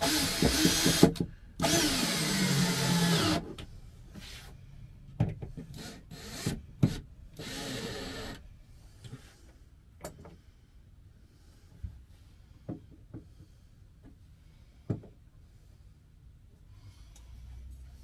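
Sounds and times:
cordless drill driving screws: 0:00.0 - 0:03.4, 0:07.4 - 0:08.4.

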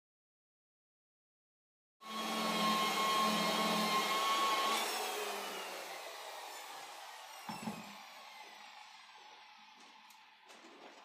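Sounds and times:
polisher motor whine spinning down: 0:02.0 - 0:10.3.

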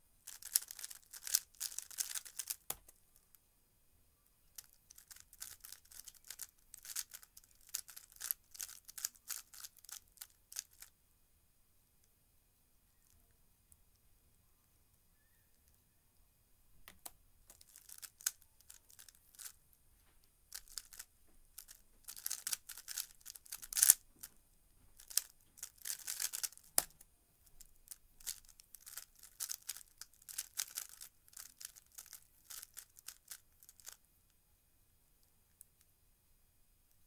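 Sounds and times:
puzzle cube clicking: 0:00.3 - 0:03.0, 0:21.6 - 0:24.0, 0:25.0 - 0:27.0, 0:28.2 - 0:34.0.

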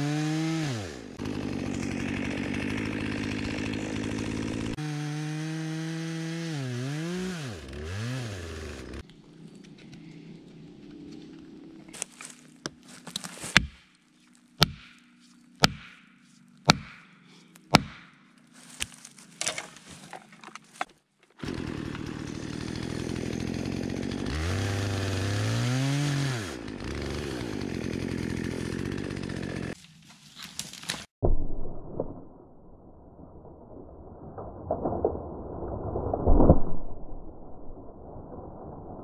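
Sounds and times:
chainsaw cutting trunk: 0:00.0 - 0:09.0, 0:21.4 - 0:29.8
tree trunk cracking: 0:01.2 - 0:04.8, 0:11.9 - 0:15.0, 0:18.6 - 0:24.9, 0:33.4 - 0:37.7
axe striking wedge: 0:13.4 - 0:13.8, 0:14.6 - 0:18.2.

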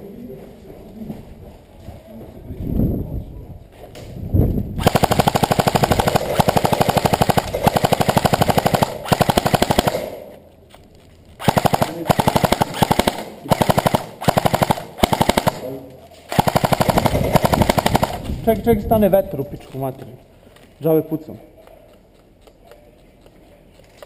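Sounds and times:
airsoft rifle firing bursts: 0:04.8 - 0:10.4, 0:11.4 - 0:18.3.

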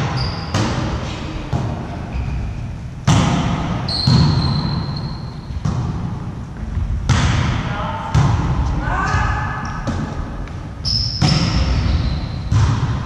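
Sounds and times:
volleyball hits echoing: 0:00.0 - 0:02.0, 0:03.0 - 0:05.0, 0:05.6 - 0:13.0
high squeak: 0:00.1 - 0:00.6, 0:10.8 - 0:12.4.

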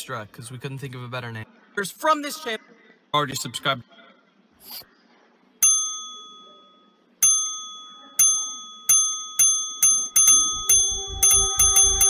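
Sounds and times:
bell-like ding: 0:05.6 - 0:12.0
low music beats and held note: 0:10.3 - 0:12.0.

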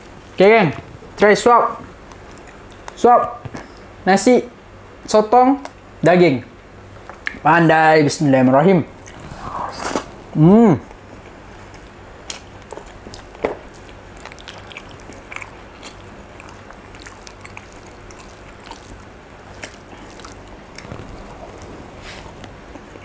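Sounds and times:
close-up chewing: 0:01.9 - 0:03.0, 0:09.0 - 0:10.2, 0:10.8 - 0:23.0
wet clicks and smacks: 0:11.7 - 0:21.7.

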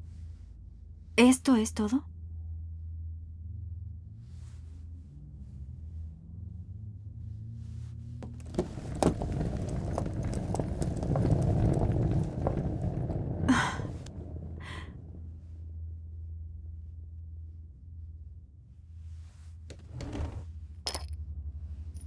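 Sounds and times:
steady low hum: 0:00.0 - 0:08.4
low rumble: 0:02.0 - 0:22.0.

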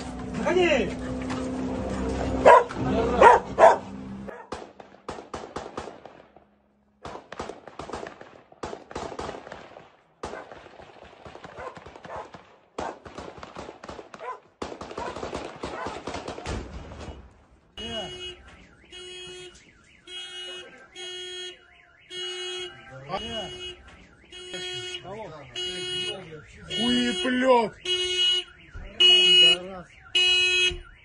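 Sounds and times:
dog barking: 0:02.4 - 0:04.6, 0:10.3 - 0:10.6, 0:11.5 - 0:13.0, 0:14.2 - 0:16.0
sharp crackles and cracks: 0:04.3 - 0:17.6.

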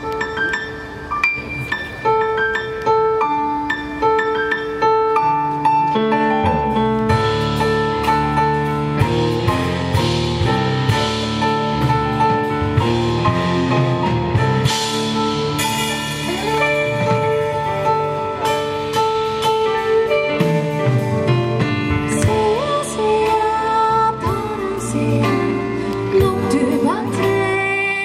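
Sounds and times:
drum kit: 0:00.0 - 0:28.0
stage keyboard: 0:00.0 - 0:28.0
electric bass: 0:06.0 - 0:28.0.

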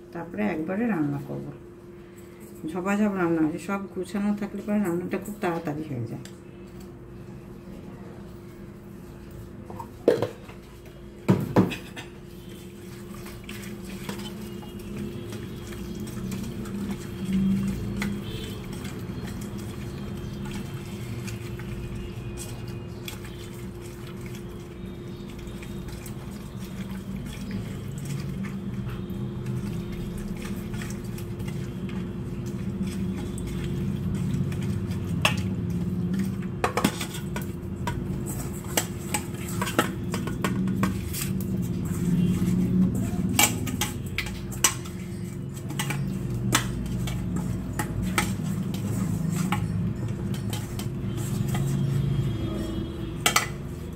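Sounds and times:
fingers mixing prawns in bowl: 0:11.7 - 0:53.9.

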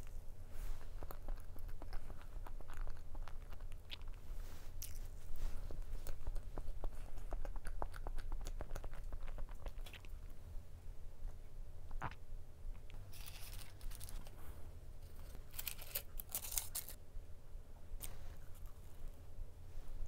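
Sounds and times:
chewing with mouth clicks: 0:00.8 - 0:10.4.

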